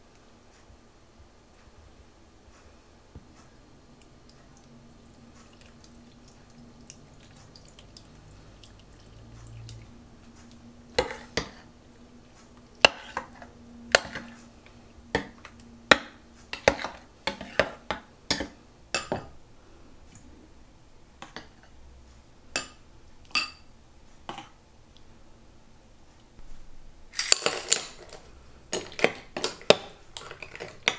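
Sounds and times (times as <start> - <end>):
dishes and utensils clinking: 27.2 - 30.9.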